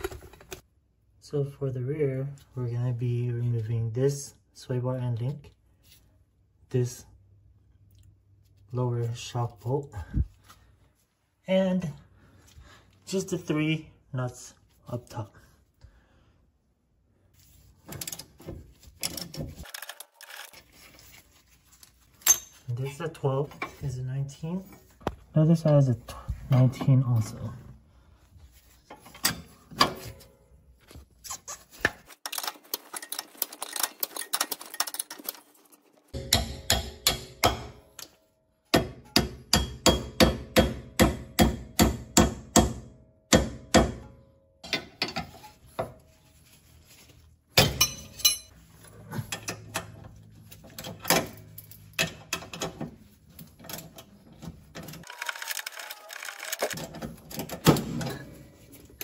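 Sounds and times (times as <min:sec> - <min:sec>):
tool strikes: 0:36.2 - 0:38.1, 0:38.7 - 0:45.0.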